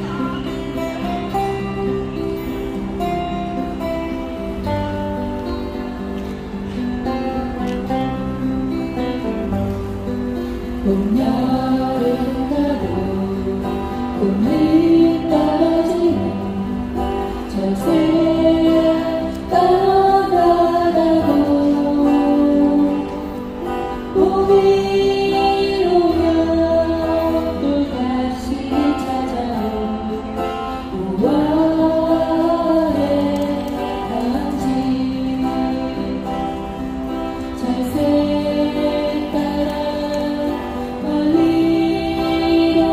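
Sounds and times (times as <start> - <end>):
acoustic guitar: 0.0 - 42.9
woman singing a ballad: 10.7 - 42.9.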